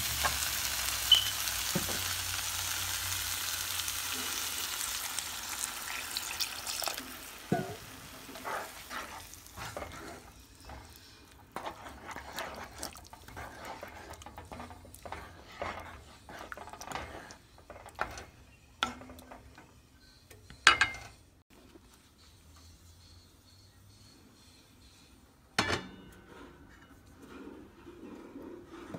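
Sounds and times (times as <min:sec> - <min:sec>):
water hissing in hot pan: 0:00.0 - 0:10.4
spoon scraping and knocking pan: 0:00.1 - 0:21.2.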